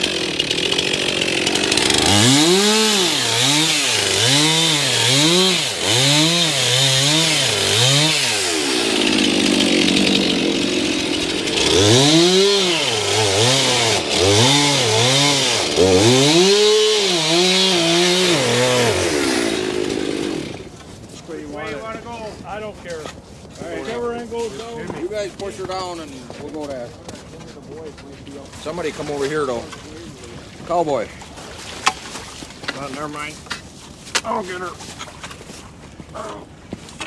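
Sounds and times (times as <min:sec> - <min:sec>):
chainsaw cutting ice: 0:00.0 - 0:22.6.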